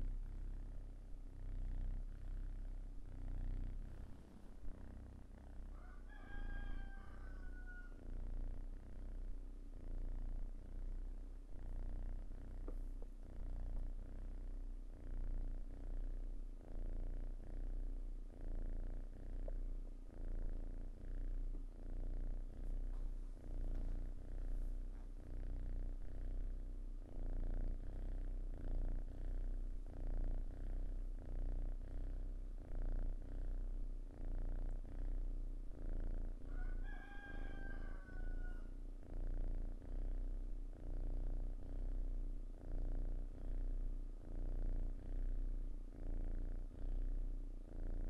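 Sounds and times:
cat purring: 0:00.0 - 0:48.0
rooster crowing: 0:05.7 - 0:08.0, 0:36.5 - 0:38.7.

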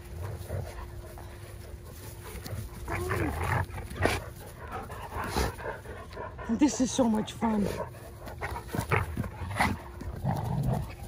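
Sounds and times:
dog growling playfully: 0:02.5 - 0:06.5, 0:07.8 - 0:11.0.

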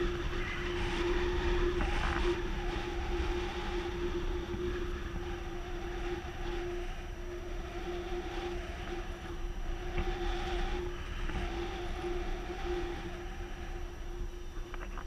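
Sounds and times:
airflow on microphone: 0:00.0 - 0:15.0
faint wavering tone: 0:00.0 - 0:15.0
steady humming tone: 0:00.0 - 0:15.0.

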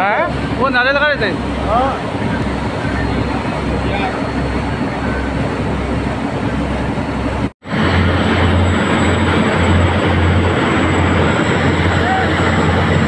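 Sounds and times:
motorboat engine: 0:00.0 - 0:13.0
wind and water rushing: 0:00.0 - 0:13.0.

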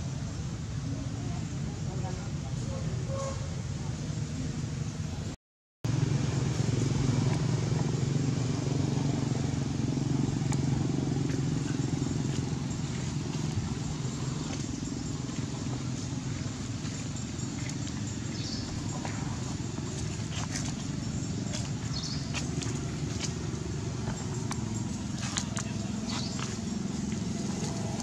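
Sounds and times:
low engine drone: 0:05.9 - 0:28.0.

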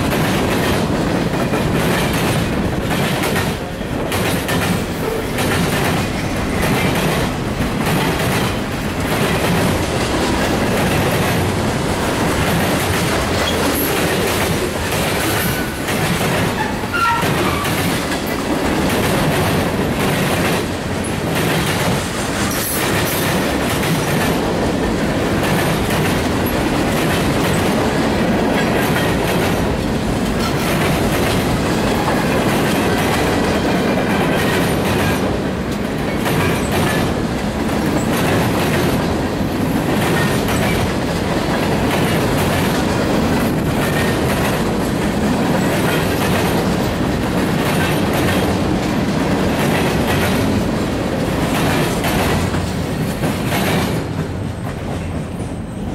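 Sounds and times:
train wheels rumbling on rails: 0:00.0 - 0:55.9.

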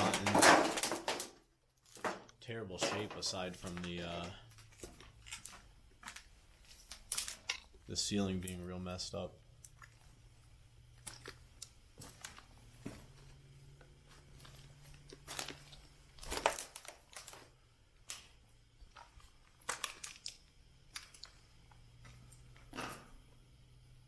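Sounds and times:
footsteps crunching on debris: 0:01.9 - 0:07.8, 0:10.8 - 0:17.6.

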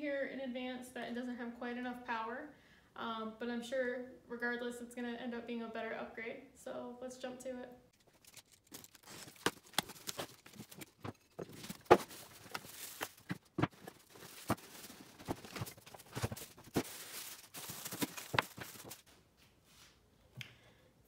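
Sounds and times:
packing rustling: 0:08.0 - 0:19.1.

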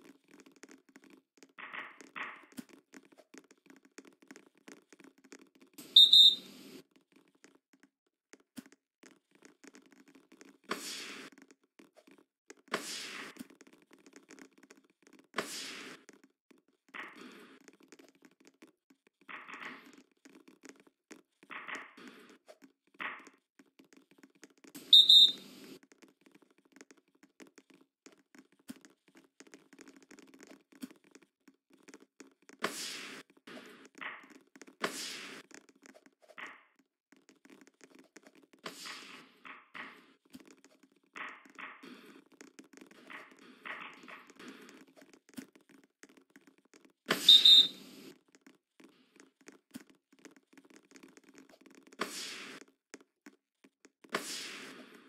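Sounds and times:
referee's whistle blast: 0:47.2 - 0:47.7.

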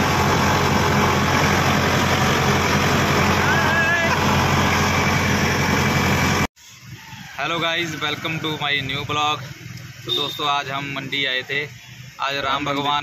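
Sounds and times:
vehicle engine running: 0:00.0 - 0:06.5
road and wind noise: 0:00.0 - 0:13.0.

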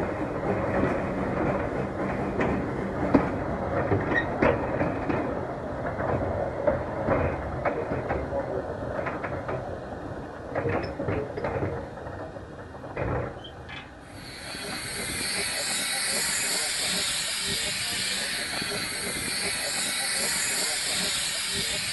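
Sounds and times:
steam train rumbling: 0:00.0 - 0:21.9
wheels and couplings clanking: 0:10.5 - 0:21.9.

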